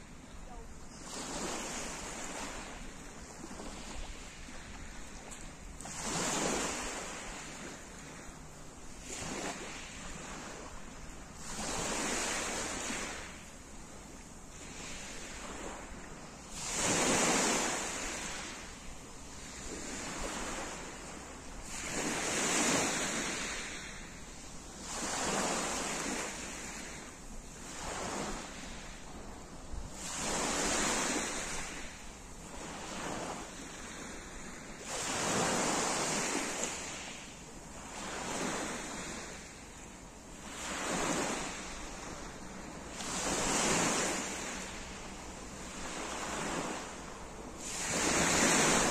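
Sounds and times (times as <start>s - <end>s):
waves washing up pebble beach: 42.9s - 44.9s, 47.6s - 48.9s.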